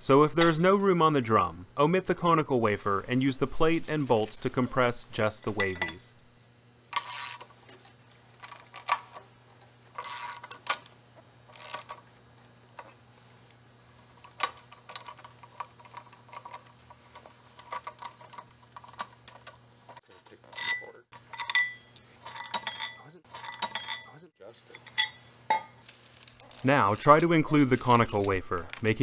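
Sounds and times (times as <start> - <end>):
metal clinks of bolts: 20.5 - 25.7.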